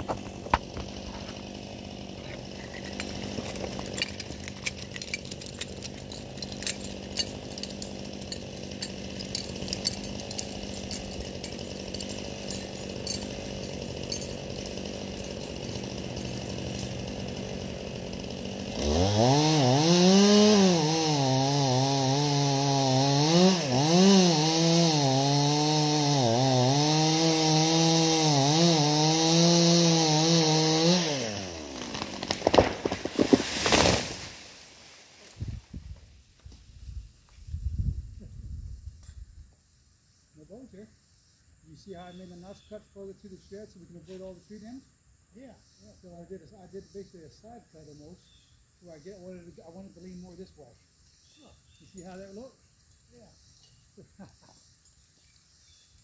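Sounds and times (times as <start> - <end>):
chainsaw running: 0.0 - 36.0.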